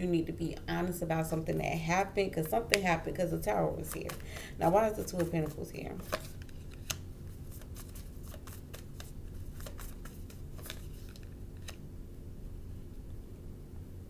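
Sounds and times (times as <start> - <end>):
steady low hum: 0.0 - 14.0
cards being shuffled: 3.8 - 11.8.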